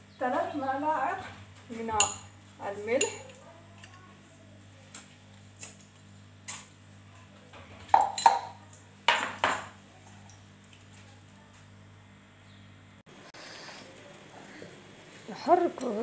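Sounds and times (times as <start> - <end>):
metal spoon clinking against dish: 2.0 - 2.3, 3.0 - 3.3, 8.0 - 8.6.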